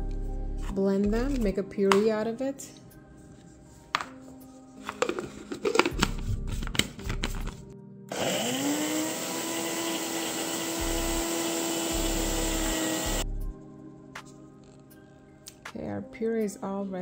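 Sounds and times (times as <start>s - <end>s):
blender motor running: 8.1s - 13.2s.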